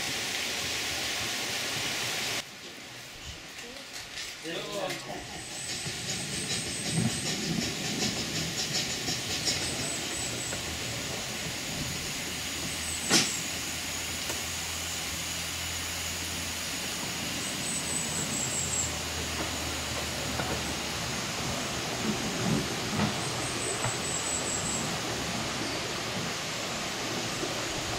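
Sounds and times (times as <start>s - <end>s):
steam locomotive hissing steam: 0.0s - 27.9s.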